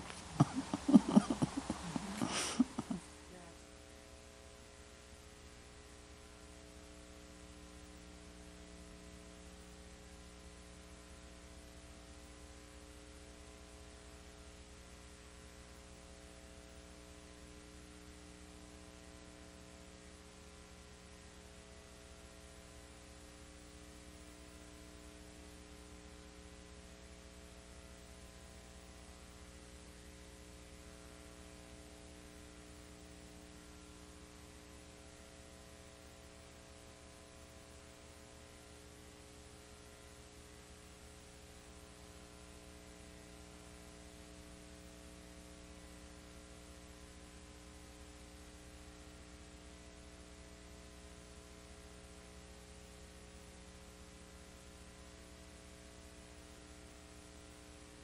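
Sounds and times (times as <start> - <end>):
hiss: 0.0 - 2.9
faint mains hum: 0.0 - 58.0.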